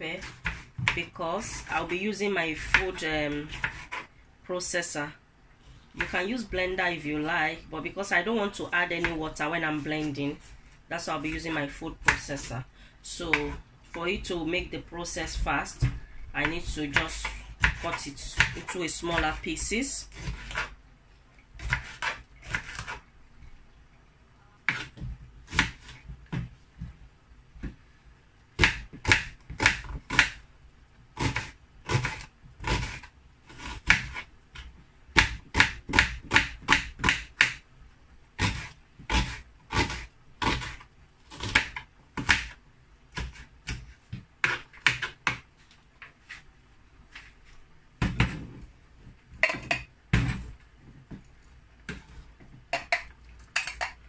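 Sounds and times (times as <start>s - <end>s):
knife chopping on wooden board: 15.7s - 19.4s, 21.6s - 23.0s, 24.7s - 26.6s, 28.6s - 30.4s, 31.2s - 37.6s, 38.4s - 45.5s, 48.0s - 48.5s, 49.4s - 50.5s.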